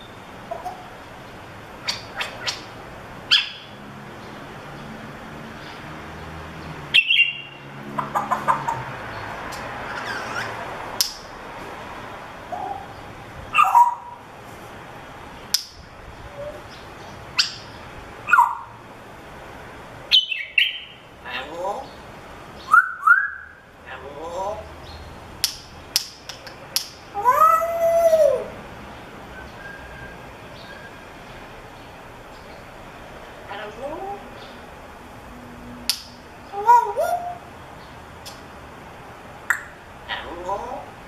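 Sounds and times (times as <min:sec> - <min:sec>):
parrot clicks chirps and whistles: 0:39.5 - 0:39.7.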